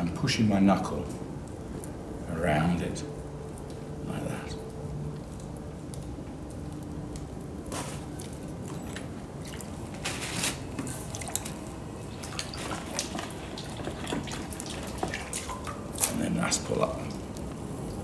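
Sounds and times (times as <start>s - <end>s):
steady low hum: 0.0s - 18.0s
water dripping and splashing: 3.1s - 18.0s
wet clay squelching: 7.8s - 18.0s.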